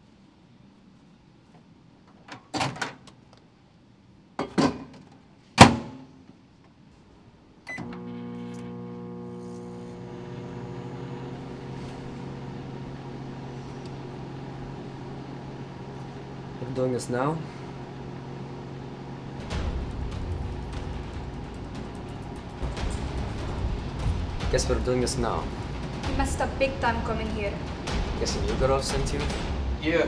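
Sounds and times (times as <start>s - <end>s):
microwave beep: 7.7s - 9.2s
microwave humming: 7.7s - 29.9s.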